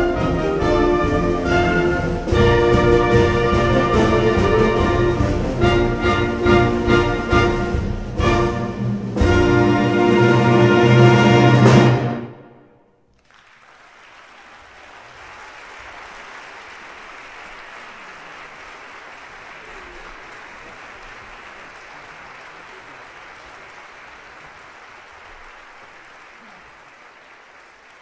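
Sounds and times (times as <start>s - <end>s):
audience applause: 13.1s - 28.0s.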